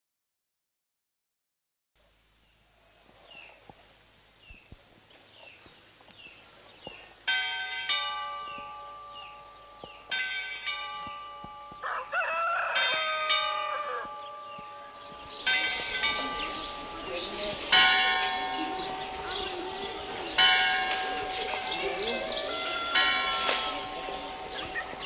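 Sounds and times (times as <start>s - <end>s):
bell strokes ringing: 7.3s - 25.0s
rooster crowing: 11.7s - 14.6s, 22.2s - 24.3s.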